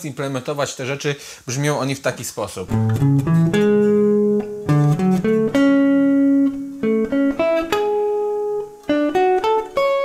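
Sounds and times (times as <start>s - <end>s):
electric guitar arpeggios: 2.7s - 10.0s.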